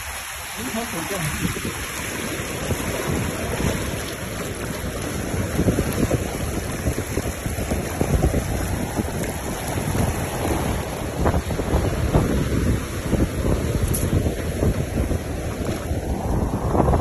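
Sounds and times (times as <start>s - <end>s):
water rushing along hull: 0.0s - 17.0s
wind buffeting microphone: 0.0s - 17.0s.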